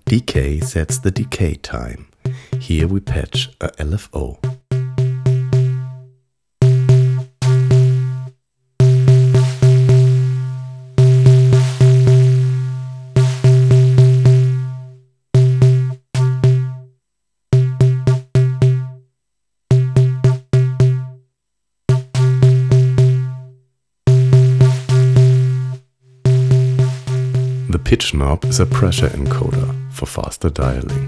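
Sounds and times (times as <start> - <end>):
low synthesized drum hits: 0.0 - 1.4, 2.2 - 3.5, 26.3 - 31.0.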